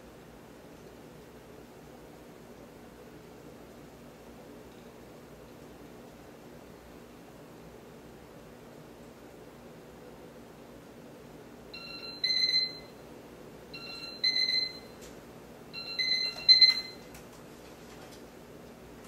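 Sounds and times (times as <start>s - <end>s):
faint steady hum: 0.0s - 19.0s
electronic alarm beeping: 11.8s - 13.0s, 13.7s - 15.0s, 15.8s - 17.0s.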